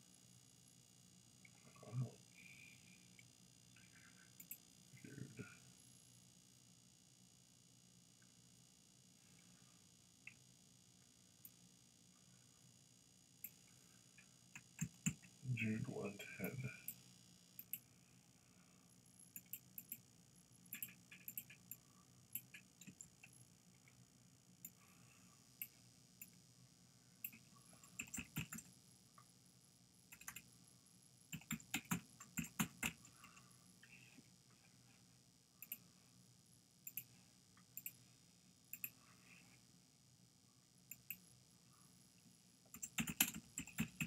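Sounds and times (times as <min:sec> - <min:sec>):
computer mouse clicks: 0:04.4 - 0:04.6, 0:14.2 - 0:15.3, 0:17.6 - 0:17.8, 0:19.3 - 0:20.0, 0:20.7 - 0:23.3, 0:27.2 - 0:28.7, 0:30.1 - 0:30.5, 0:31.3 - 0:34.0, 0:35.6 - 0:35.8, 0:36.8 - 0:38.0, 0:38.7 - 0:39.0, 0:40.9 - 0:41.2, 0:42.7 - 0:44.0
keyboard keystrokes: 0:42.7 - 0:44.0.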